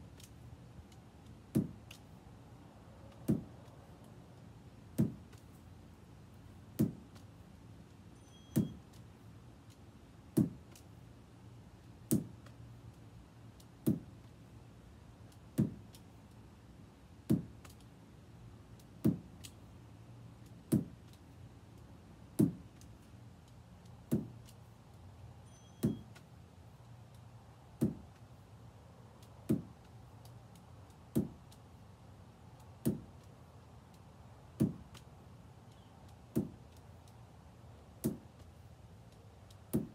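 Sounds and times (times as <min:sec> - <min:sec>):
ball thudding against wall: 0:01.5 - 0:01.8, 0:03.2 - 0:03.6, 0:05.0 - 0:05.4, 0:06.8 - 0:07.1, 0:10.4 - 0:10.7, 0:15.6 - 0:15.8, 0:17.3 - 0:17.6, 0:19.0 - 0:19.3, 0:20.7 - 0:21.0, 0:22.4 - 0:22.7, 0:24.1 - 0:24.4, 0:25.8 - 0:26.2, 0:27.8 - 0:28.1, 0:29.5 - 0:29.8, 0:32.8 - 0:33.1, 0:34.6 - 0:34.9, 0:36.3 - 0:36.6, 0:38.0 - 0:38.3.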